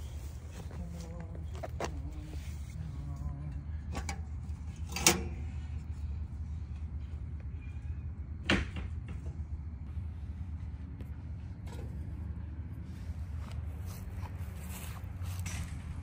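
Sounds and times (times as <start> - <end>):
knocks and clicks of metal stove: 3.9 - 5.4.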